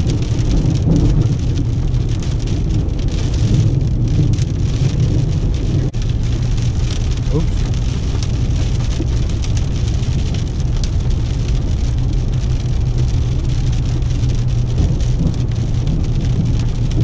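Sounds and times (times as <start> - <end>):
car engine and road rumble: 0.0 - 17.0
rain tapping on car: 0.0 - 17.0.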